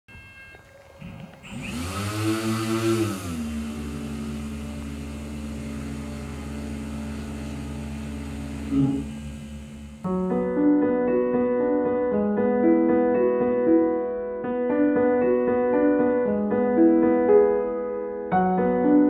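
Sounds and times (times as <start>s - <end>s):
electric motors and propellers whining: 0.2s - 10.1s.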